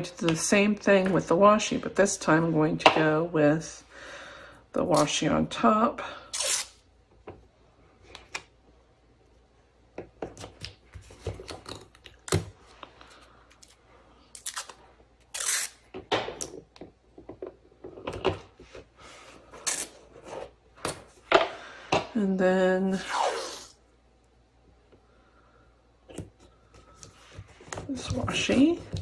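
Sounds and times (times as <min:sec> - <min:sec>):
tape ripping: 0:06.3 - 0:06.8, 0:13.6 - 0:15.9, 0:19.6 - 0:20.0.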